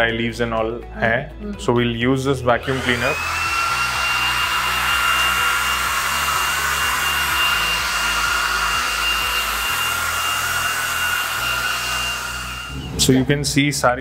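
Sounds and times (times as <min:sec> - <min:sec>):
stick vacuum cleaner running: 0:02.6 - 0:13.1.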